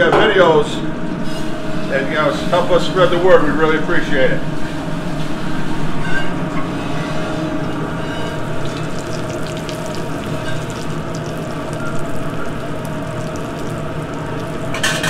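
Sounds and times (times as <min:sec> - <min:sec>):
kitchen hum: 0:00.0 - 0:15.0
chicken frying in oil: 0:07.7 - 0:15.0.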